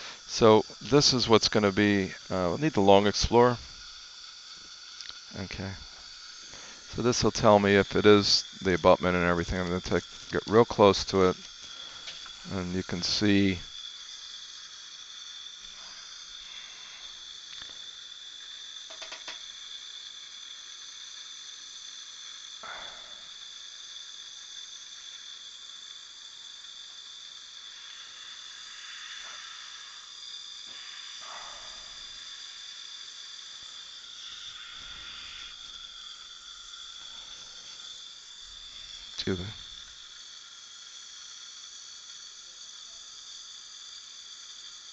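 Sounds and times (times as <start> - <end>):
suction hiss with whine: 0.0 - 44.9
faint ticks: 4.6 - 5.2.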